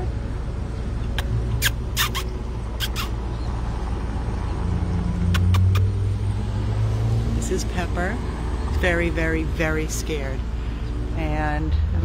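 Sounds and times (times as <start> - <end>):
road traffic rumble: 0.0 - 12.0
vehicle passing: 0.0 - 12.0.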